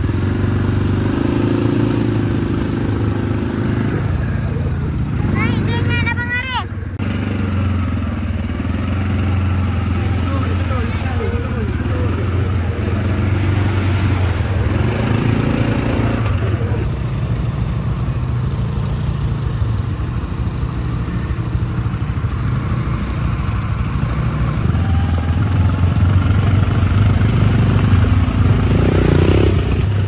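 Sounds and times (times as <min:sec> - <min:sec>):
quad bike engines running: 0:00.0 - 0:30.0.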